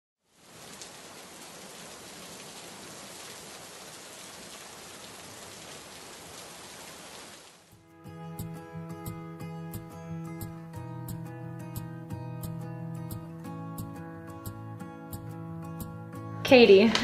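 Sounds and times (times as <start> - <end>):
heavy rain: 0.2 - 7.8.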